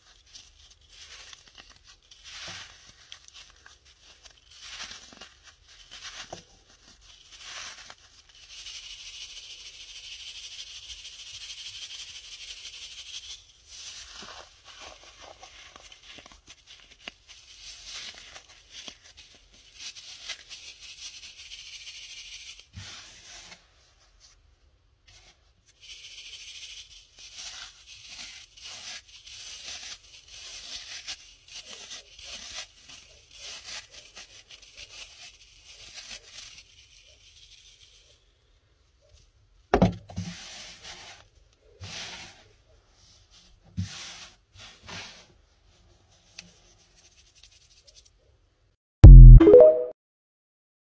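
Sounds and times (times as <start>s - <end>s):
powder sifting through sieve: 0.0s - 24.4s, 25.0s - 38.5s, 40.1s - 48.1s
sharp knock: 39.7s - 40.0s.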